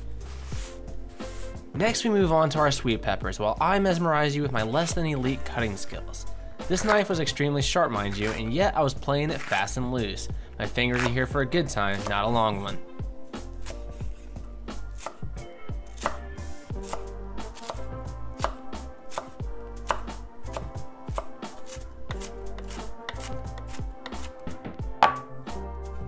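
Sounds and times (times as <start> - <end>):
knife chopping on wooden board: 8.2 - 8.5, 10.9 - 11.2, 13.5 - 14.2, 14.9 - 15.2, 15.8 - 17.8, 18.4 - 25.4
ceramic bowl set down on board: 25.0 - 25.3.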